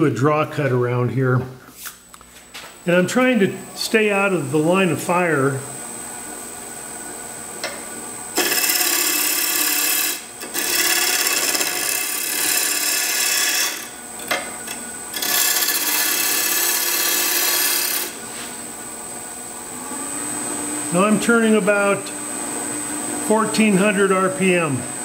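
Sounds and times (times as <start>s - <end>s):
wood lathe running: 8.3s - 18.2s
gouge cutting wood on lathe: 8.4s - 18.2s.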